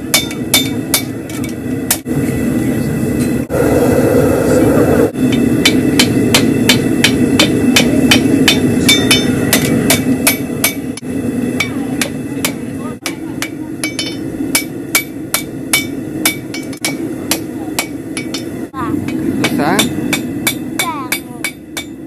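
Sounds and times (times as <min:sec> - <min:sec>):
hammer ringing on anvil: 0:00.1 - 0:01.2, 0:05.6 - 0:10.9, 0:11.6 - 0:18.5, 0:19.1 - 0:22.0.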